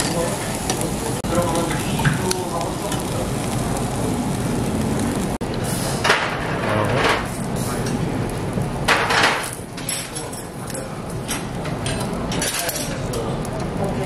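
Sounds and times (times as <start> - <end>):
meat sizzling on grill: 0.0 - 14.0
cutlery and dishes clinking: 8.9 - 13.3.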